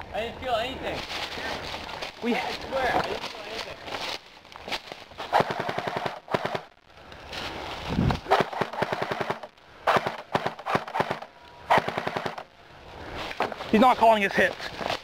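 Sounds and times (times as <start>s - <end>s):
airsoft gun full-auto bursts: 5.3s - 6.7s, 8.3s - 12.5s.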